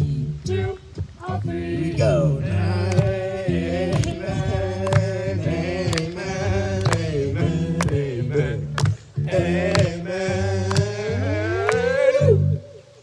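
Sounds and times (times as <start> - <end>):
voices singing along: 0.0 - 13.0.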